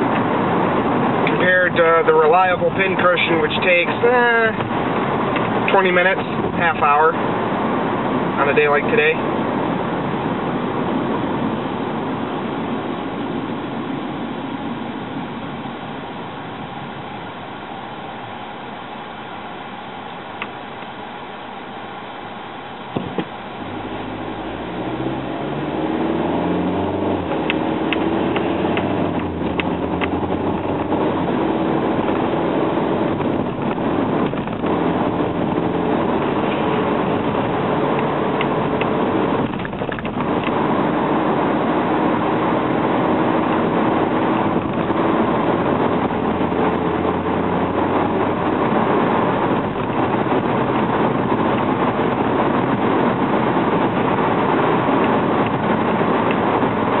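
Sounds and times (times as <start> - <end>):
tyre and road noise: 0.0 - 57.0
car engine accelerating: 22.4 - 57.0.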